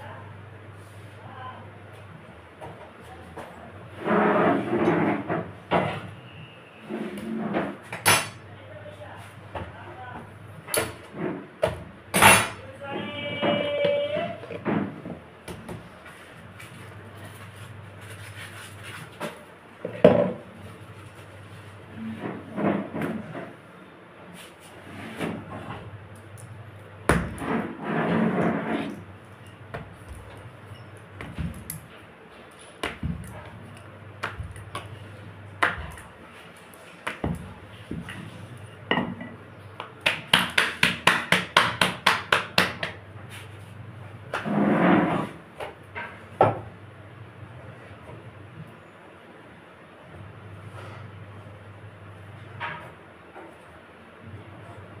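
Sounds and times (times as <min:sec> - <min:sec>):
dough slapped between palms: 0:39.8 - 0:43.0.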